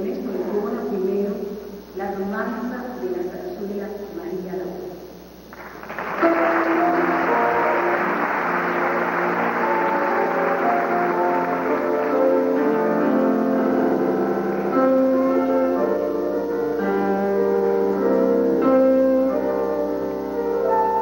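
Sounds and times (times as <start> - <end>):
slow piano introduction: 4.8 - 21.0.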